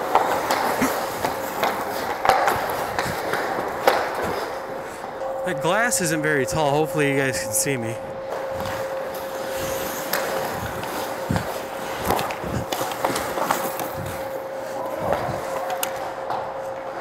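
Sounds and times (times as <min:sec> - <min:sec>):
hockey sticks and puck clacking: 0:00.0 - 0:04.6, 0:08.3 - 0:16.9
skate blades scraping ice: 0:00.0 - 0:04.6, 0:08.6 - 0:15.7
steady hum: 0:00.0 - 0:17.0.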